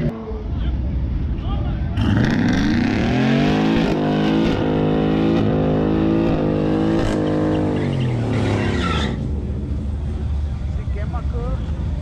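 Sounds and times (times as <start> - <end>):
truck engine revving high: 2.0 - 9.8.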